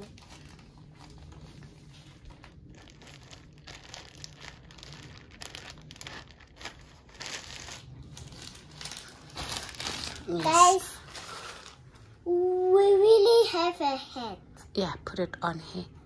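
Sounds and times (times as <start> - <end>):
plastic pouch crinkling: 0.0 - 12.0.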